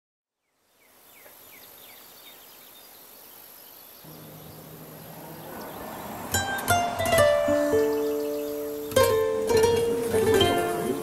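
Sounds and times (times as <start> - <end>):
birds chirping: 0.4 - 11.0
steady high-pitched hiss: 0.4 - 11.0
low steady drone: 4.1 - 6.8.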